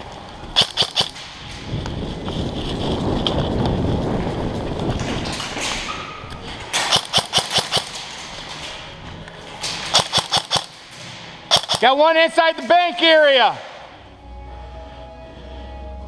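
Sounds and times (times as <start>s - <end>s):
airsoft rifle shots: 0.6s - 1.2s, 6.8s - 8.0s, 9.9s - 10.8s, 11.5s - 12.1s
muffled rumble and scuffing: 1.2s - 6.8s.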